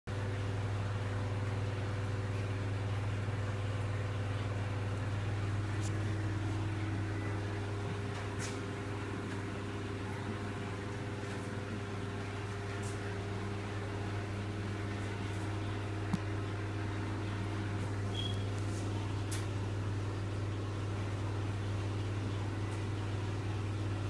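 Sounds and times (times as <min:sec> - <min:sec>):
aquarium equipment humming: 0:00.1 - 0:24.0.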